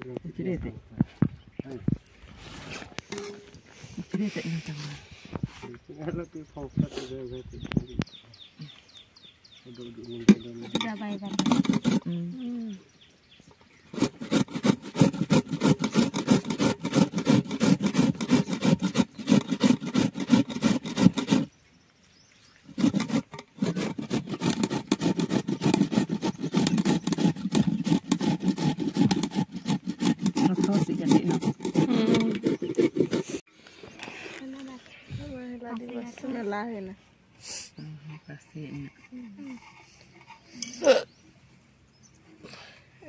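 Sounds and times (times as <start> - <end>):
gourd rasping on metal grater: 10.6 - 12.2, 13.9 - 21.5, 22.7 - 33.4.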